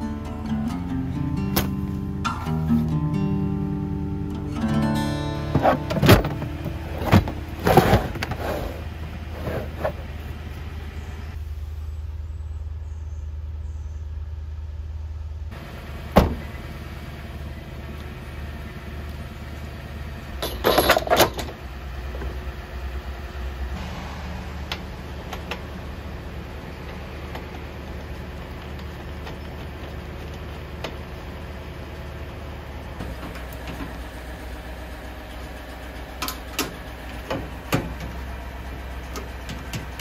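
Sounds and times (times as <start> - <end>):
steady low rumble: 21.8 - 29.0
sharp bang: 23.7 - 26.6.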